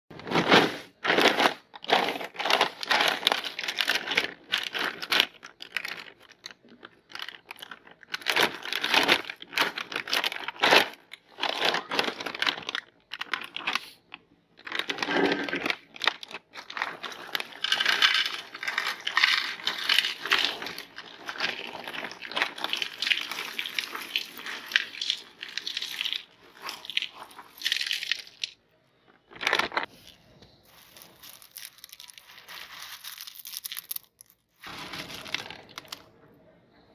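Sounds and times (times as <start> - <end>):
cereal crunching in grinder: 0.4 - 6.2, 14.6 - 28.5, 30.7 - 36.0.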